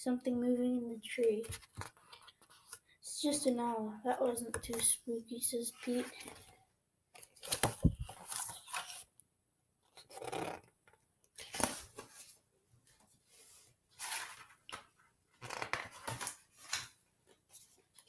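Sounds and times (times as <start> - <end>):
book pages turning: 1.4 - 2.8, 7.2 - 9.1, 11.4 - 12.4, 14.0 - 18.0.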